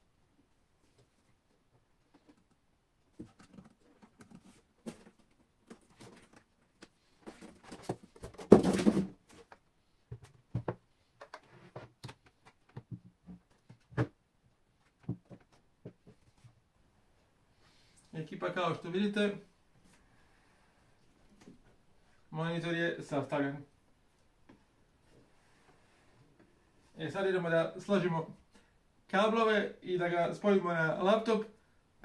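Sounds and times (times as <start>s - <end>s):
plastic parts clicking and knocking: 3.2s - 14.2s.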